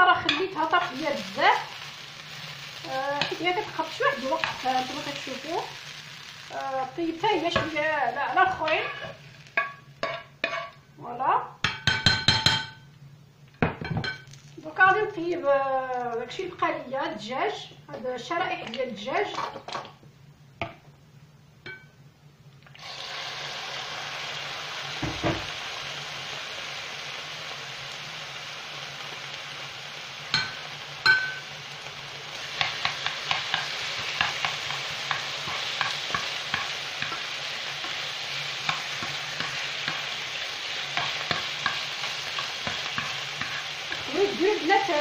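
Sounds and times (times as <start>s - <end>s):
chicken sizzling in oil: 0.0s - 10.8s, 22.7s - 45.0s
metal spoon scraping pan: 8.4s - 10.8s, 40.9s - 44.3s.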